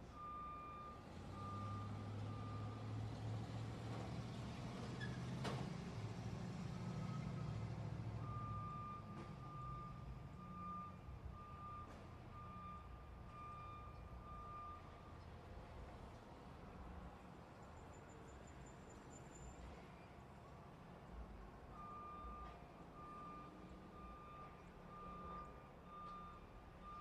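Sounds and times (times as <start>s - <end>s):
reversing warning beeps: 0.1s - 2.9s, 8.2s - 15.1s, 21.7s - 27.0s.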